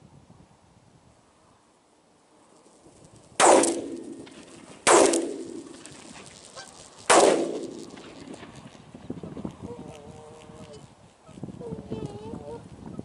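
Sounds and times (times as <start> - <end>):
shotgun shots with echo: 3.4 - 5.8, 7.1 - 8.1.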